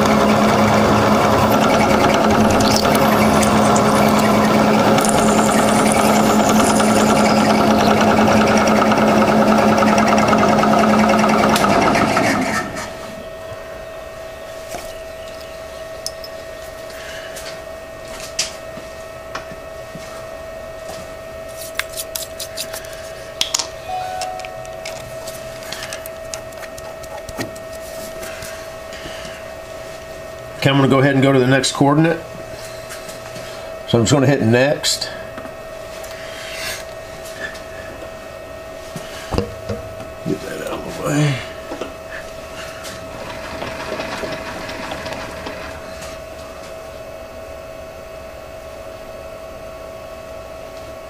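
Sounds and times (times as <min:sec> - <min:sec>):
milling machine drilling steel: 0:00.0 - 0:10.5, 0:43.1 - 0:46.1
faint steady hum: 0:12.9 - 0:49.2.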